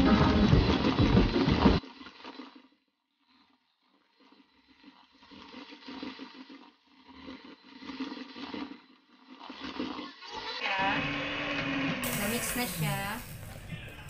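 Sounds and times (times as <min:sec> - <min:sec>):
electric hand mixer whirring: 0:10.6 - 0:14.0.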